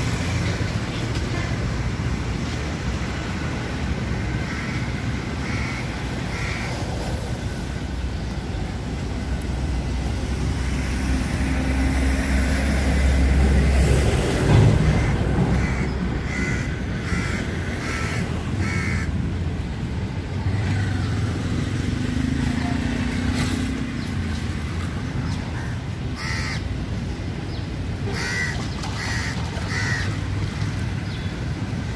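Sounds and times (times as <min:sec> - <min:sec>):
crows cawing: 0:04.4 - 0:06.7, 0:14.8 - 0:19.1, 0:25.6 - 0:26.6, 0:28.1 - 0:30.2.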